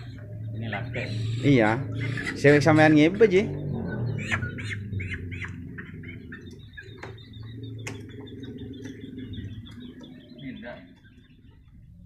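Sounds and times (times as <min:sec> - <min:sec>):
chick peeping: 0:00.0 - 0:12.0
steady low hum: 0:00.0 - 0:12.0.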